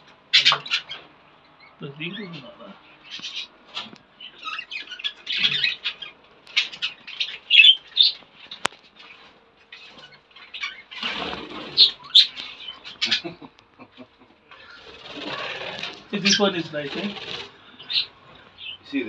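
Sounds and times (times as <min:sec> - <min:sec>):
budgerigars chirping and chattering: 0:00.0 - 0:13.5, 0:14.4 - 0:19.0
wings fluttering: 0:06.3 - 0:13.1, 0:14.5 - 0:18.4.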